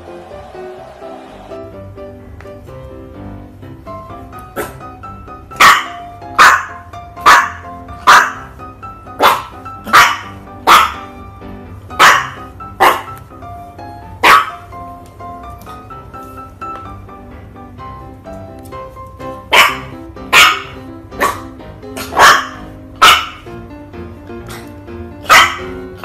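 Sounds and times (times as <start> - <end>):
puppy barking: 4.5 - 11.2, 12.0 - 13.3, 14.1 - 14.7, 19.4 - 23.6, 24.4 - 26.0.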